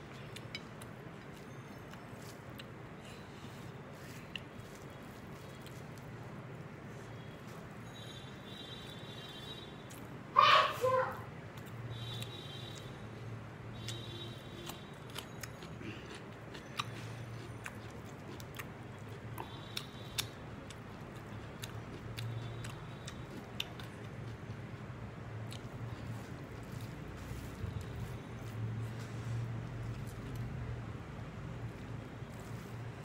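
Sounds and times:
person chewing: 0:00.1 - 0:06.2, 0:09.9 - 0:10.2, 0:13.8 - 0:30.6
crunching cucumber: 0:14.6 - 0:28.6.

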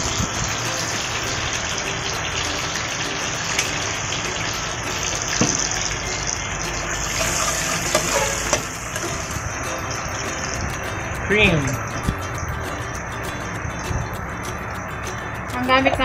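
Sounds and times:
oil sizzling in a frying pan: 0:00.0 - 0:10.6.

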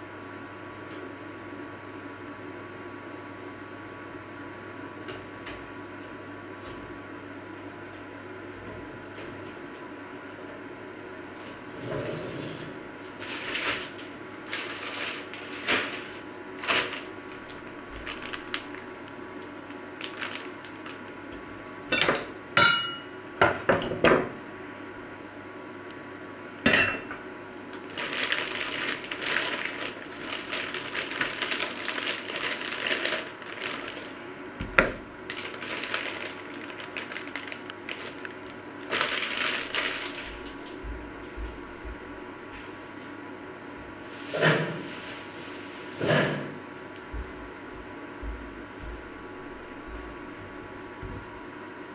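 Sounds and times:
plastic bag rustling: 0:13.1 - 0:21.4, 0:27.7 - 0:40.8, 0:44.1 - 0:46.0.

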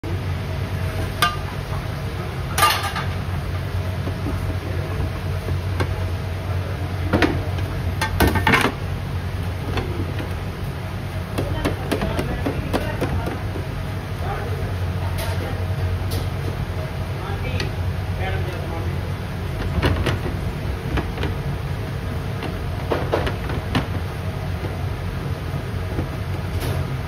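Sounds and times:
steady low hum: 0:00.0 - 0:27.0
metal pans clanking: 0:01.2 - 0:01.6, 0:02.5 - 0:03.2.

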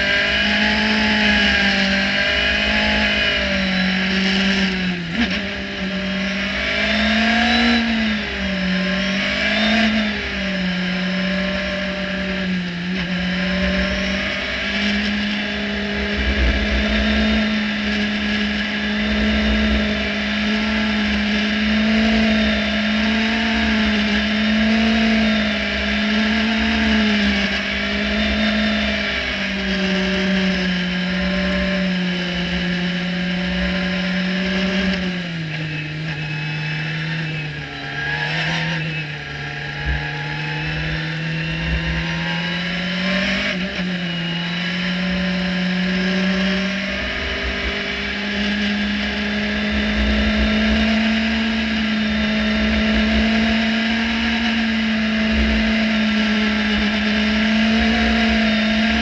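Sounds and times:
race car engine running: 0:00.0 - 0:59.0
wind buffeting on microphone: 0:15.8 - 0:18.3.

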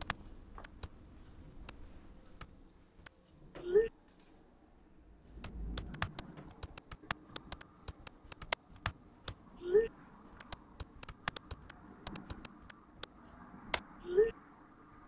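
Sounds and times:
keyboard typing: 0:00.0 - 0:00.9, 0:05.4 - 0:13.1
short rising chirp: 0:14.0 - 0:14.4.

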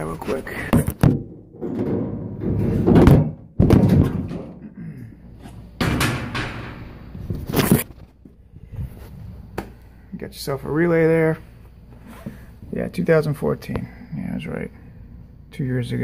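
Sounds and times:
sheet metal panel thunks and scrapes: 0:00.7 - 0:04.7, 0:05.4 - 0:08.0.

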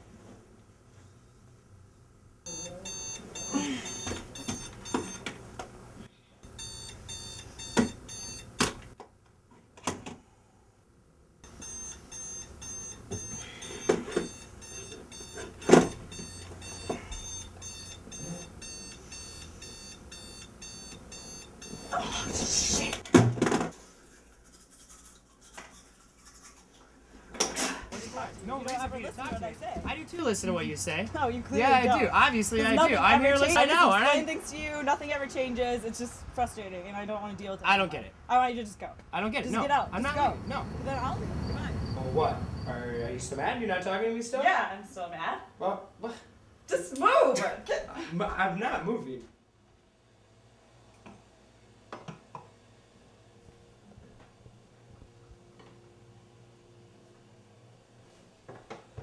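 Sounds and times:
alarm clock beeping: 0:02.5 - 0:05.3, 0:06.5 - 0:08.7, 0:11.5 - 0:22.0.

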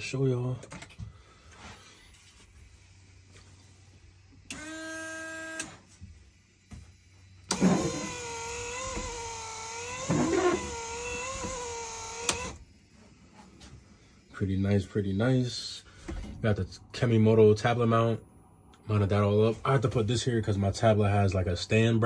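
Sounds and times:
washer pump humming: 0:07.4 - 0:12.7
wiper motor whining: 0:07.4 - 0:12.7.

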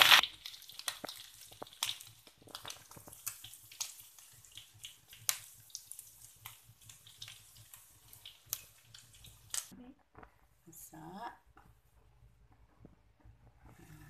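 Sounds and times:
hot oil crackling and popping: 0:00.0 - 0:10.3.

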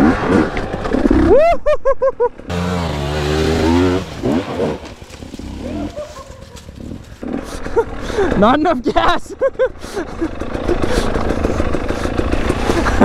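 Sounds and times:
dirt bike engine revving: 0:02.5 - 0:08.4, 0:10.1 - 0:13.0.

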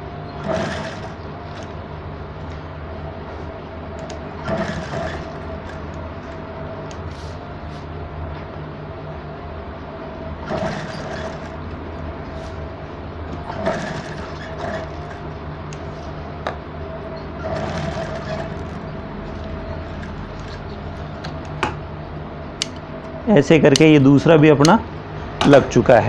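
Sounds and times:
sewing machine motor hum: 0:00.0 - 0:01.8, 0:02.4 - 0:07.4, 0:10.3 - 0:16.2, 0:16.8 - 0:21.5
sewing machine stitching: 0:00.4 - 0:01.7, 0:04.4 - 0:06.0, 0:10.4 - 0:11.6, 0:13.4 - 0:15.3, 0:17.4 - 0:18.8.

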